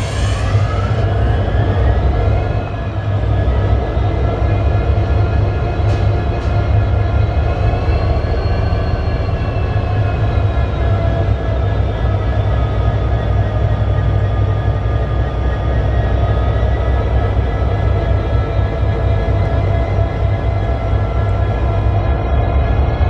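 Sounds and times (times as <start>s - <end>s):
diesel locomotive idling: 0.0s - 23.0s.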